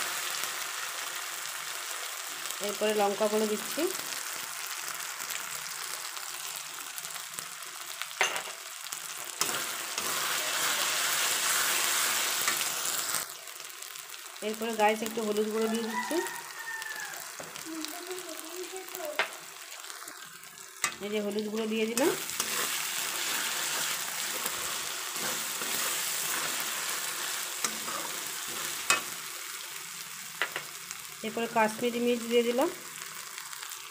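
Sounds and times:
food sizzling in oil: 0:00.0 - 0:33.9
metal spatula scraping: 0:09.4 - 0:12.7, 0:21.9 - 0:29.3.

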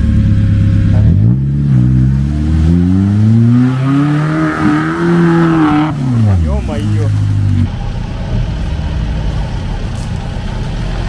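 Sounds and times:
engine revving hard: 0:00.9 - 0:07.7.

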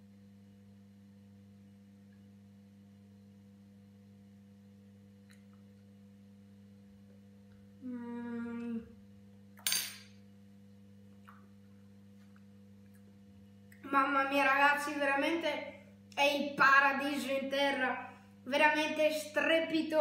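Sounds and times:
low electrical hum: 0:00.0 - 0:20.0
boy humming with pleasure: 0:07.8 - 0:09.0.

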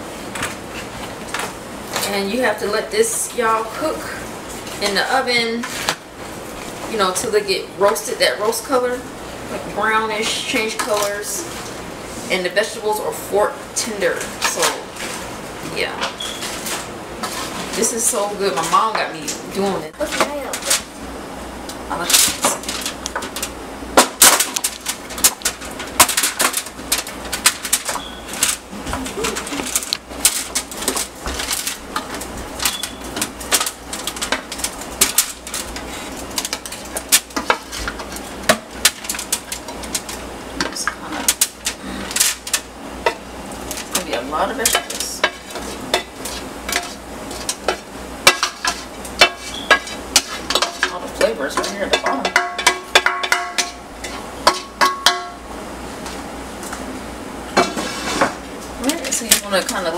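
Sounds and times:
vegetables dropping onto foil: 0:24.0 - 0:40.2
spoon scraping mixing bowl: 0:44.7 - 0:54.6, 0:57.6 - 0:58.4.

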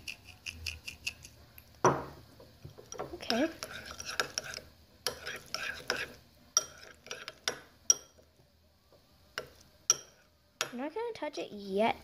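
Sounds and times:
spoon stirring in bowl: 0:00.0 - 0:01.8, 0:02.4 - 0:08.4, 0:09.3 - 0:10.8
spoon clinking against bowl: 0:02.8 - 0:08.3, 0:09.4 - 0:10.8.

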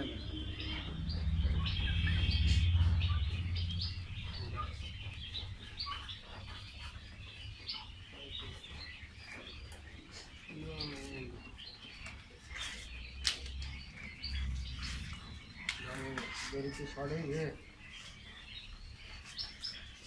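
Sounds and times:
low rumble: 0:00.0 - 0:08.0, 0:13.0 - 0:15.9
bird trill: 0:00.0 - 0:20.0
birds chirping: 0:00.0 - 0:20.0.

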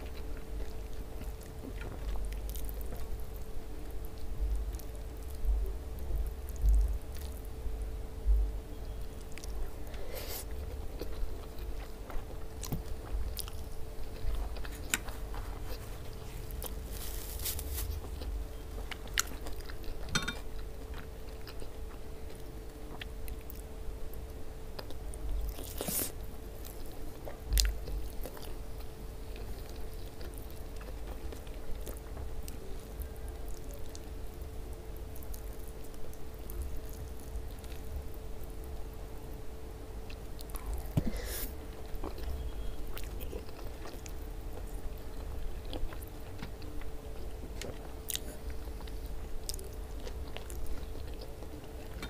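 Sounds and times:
person chewing food: 0:00.0 - 0:05.4, 0:09.2 - 0:34.3, 0:40.1 - 0:52.0.

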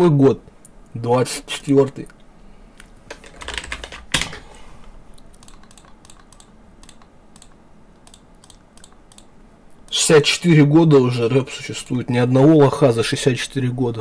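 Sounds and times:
keyboard typing: 0:05.2 - 0:09.3
mouse clicks: 0:05.2 - 0:10.0.

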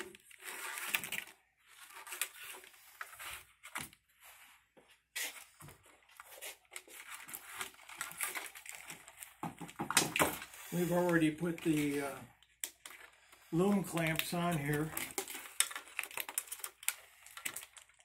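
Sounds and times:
plastic wire loom rustling: 0:00.0 - 0:03.8, 0:10.0 - 0:18.0.

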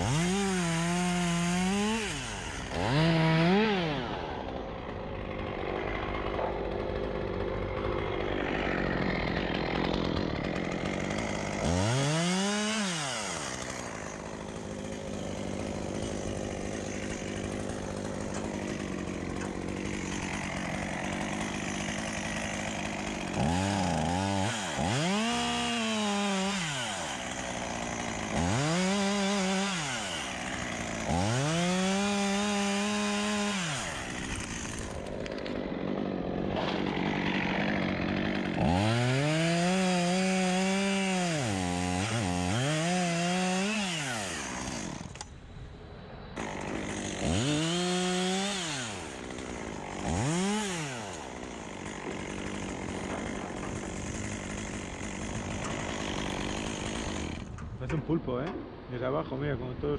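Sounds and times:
chainsaw revving: 0:00.0 - 0:45.3, 0:46.4 - 0:57.6.

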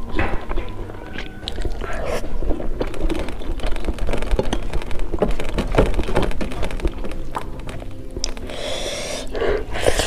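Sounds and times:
wet chewing: 0:00.0 - 0:03.5.

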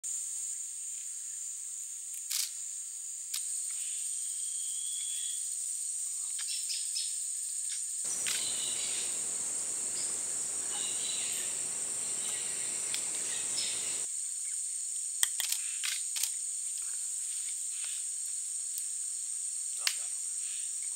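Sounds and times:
insect chorus buzzing: 0:00.1 - 0:20.9
sharp clicks: 0:08.1 - 0:08.6, 0:12.9 - 0:13.6
bird-like chirps: 0:08.1 - 0:14.1.

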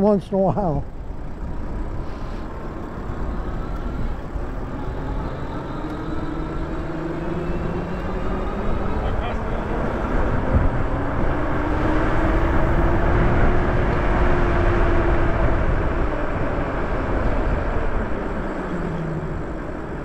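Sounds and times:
bike tyre noise: 0:00.8 - 0:13.9
electric motor whine: 0:00.9 - 0:20.0
wind on microphone: 0:09.7 - 0:18.6.

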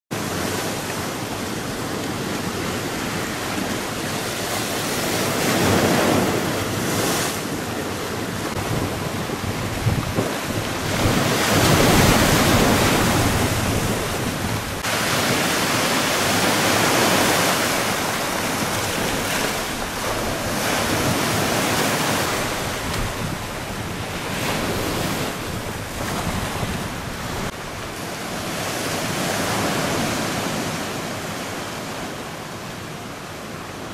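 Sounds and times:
sea waves crashing: 0:00.1 - 0:33.9
wind buffeting microphone: 0:03.0 - 0:28.0.

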